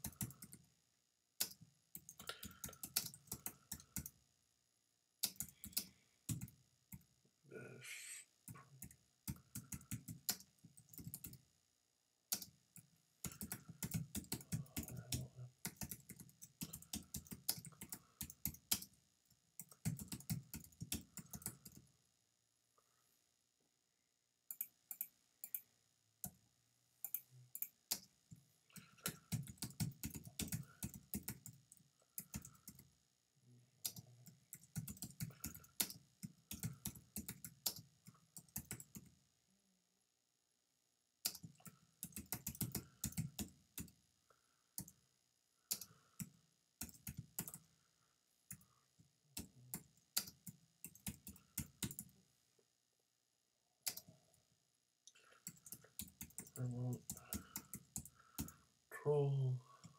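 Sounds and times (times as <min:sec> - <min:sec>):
computer keyboard typing: 0:00.0 - 0:00.7, 0:01.4 - 0:04.2, 0:05.2 - 0:07.0, 0:08.8 - 0:11.4, 0:12.3 - 0:19.0, 0:19.6 - 0:21.9, 0:28.7 - 0:32.9, 0:33.8 - 0:39.2, 0:41.2 - 0:44.0, 0:44.8 - 0:45.0, 0:45.6 - 0:47.7, 0:49.3 - 0:52.2, 0:53.8 - 0:54.2, 0:55.2 - 0:58.6.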